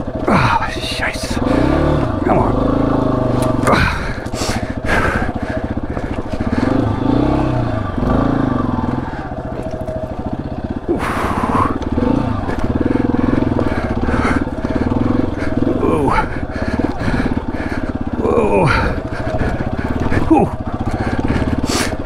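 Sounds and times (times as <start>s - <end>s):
motorcycle engine at low revs: 0.0s - 22.0s.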